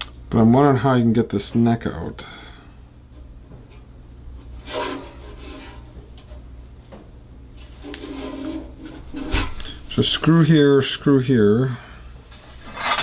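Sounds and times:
hands rubbing metal guitar body: 7.6 - 9.8.

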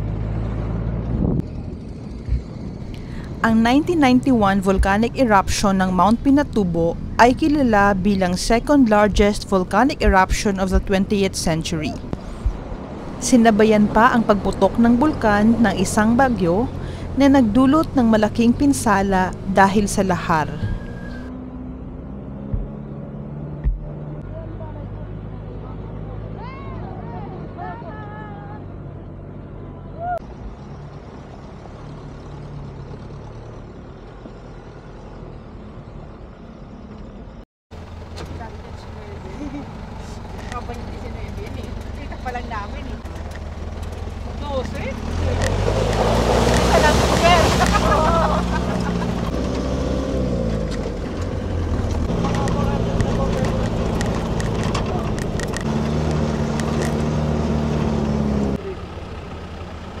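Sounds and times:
jeep engine hum: 0.0 - 60.0
rumble of vehicle on rough ground: 0.0 - 60.0
rattles: 50.4 - 57.2.

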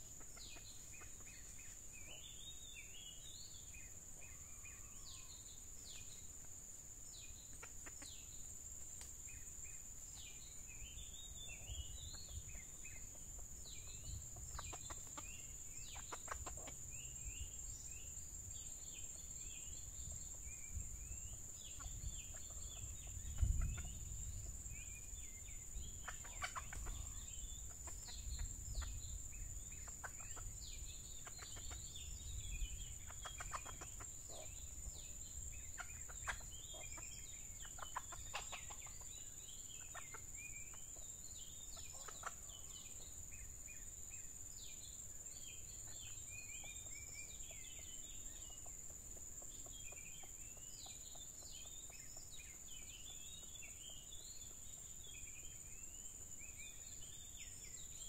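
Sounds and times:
hens clucking: 14.4 - 16.8, 26.0 - 28.5, 33.0 - 34.5, 35.8 - 39.0.

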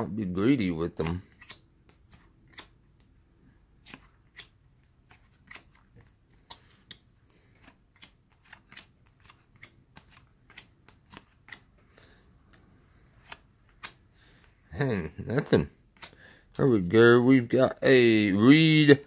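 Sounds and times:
cards flipped by hand: 0.9 - 3.2, 3.8 - 14.5, 15.8 - 16.6.

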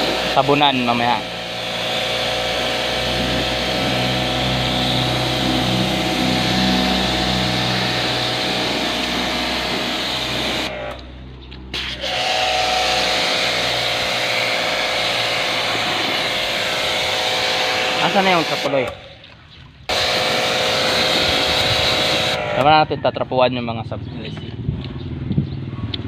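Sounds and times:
pressure washer motor whine: 0.0 - 19.1, 19.9 - 22.9
water jet hissing on metal: 11.8 - 18.9.

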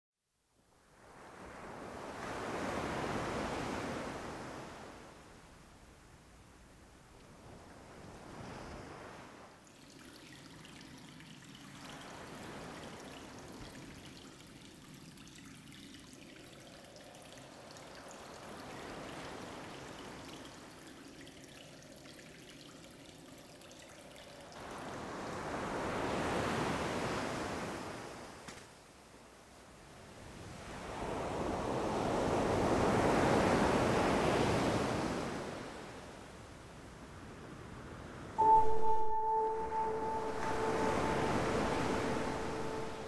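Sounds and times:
sea waves washing in: 1.0 - 5.2, 11.6 - 14.4, 24.6 - 28.4, 38.4 - 43.0.

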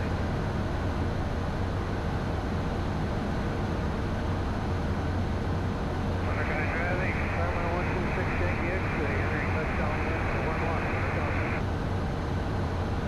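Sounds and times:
jet cockpit engine drone: 0.0 - 11.7.

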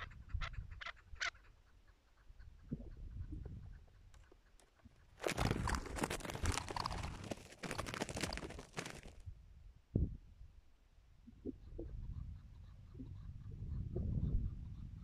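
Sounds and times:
dense crunching and crackling rustle: 5.2 - 9.2.

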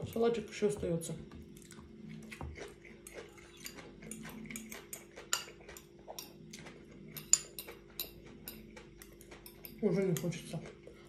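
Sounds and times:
fork clinking on ceramic bowl: 7.1 - 10.4.

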